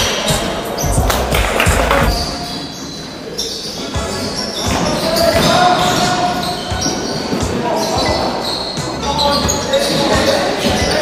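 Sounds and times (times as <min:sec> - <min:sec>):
basketball bouncing on wooden floor: 0:00.9 - 0:02.2.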